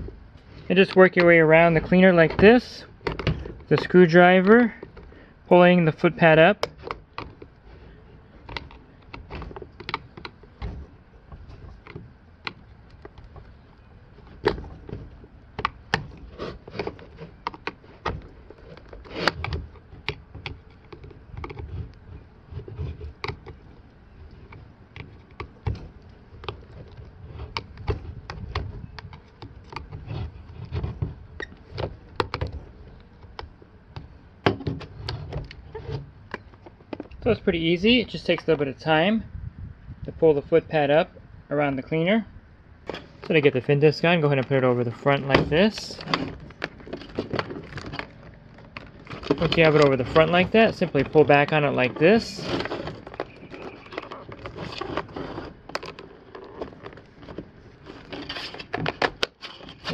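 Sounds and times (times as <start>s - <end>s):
tool and plastic clicks and knocks: 0.9s - 5.1s, 8.4s - 37.3s, 44.3s - 59.9s
screwdriver scraping plastic: 6.2s - 37.4s, 44.4s - 59.9s.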